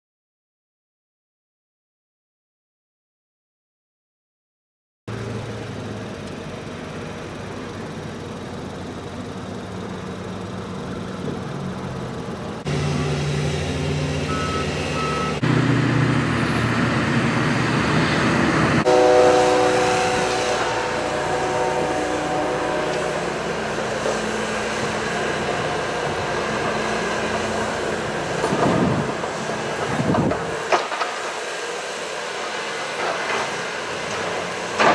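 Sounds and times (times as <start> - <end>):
snow-clearing machine engines: 5.1 - 34.9
short high beeps: 14.3 - 15.4.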